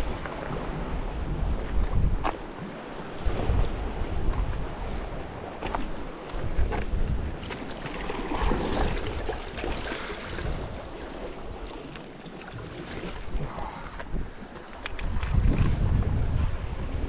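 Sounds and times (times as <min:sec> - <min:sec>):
wind on microphone: 0:00.0 - 0:11.8, 0:12.5 - 0:17.0
sea splashing against rocks: 0:05.6 - 0:16.0.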